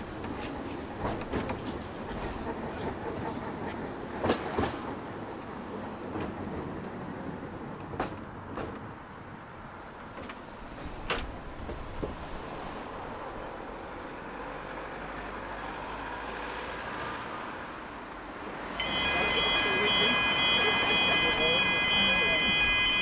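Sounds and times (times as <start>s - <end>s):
tram wheels clicking over rail joints: 0.0s - 13.0s
tram rolling with steady hum: 0.0s - 23.0s.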